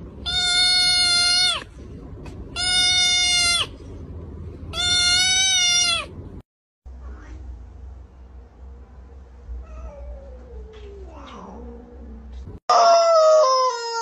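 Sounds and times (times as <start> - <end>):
kitten mewing: 2.6 - 3.7, 4.7 - 6.1.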